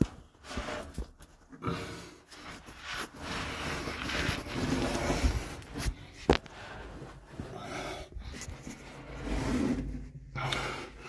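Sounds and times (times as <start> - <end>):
person breathing: 1.6 - 11.0
clothing rustling against rock: 2.4 - 10.0.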